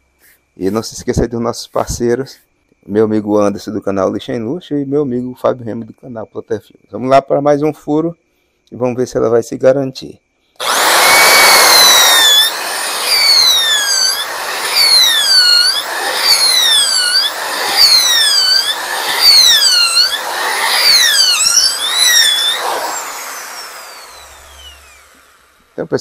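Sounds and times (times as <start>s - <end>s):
electric drill boring wood: 10.6s - 25.8s.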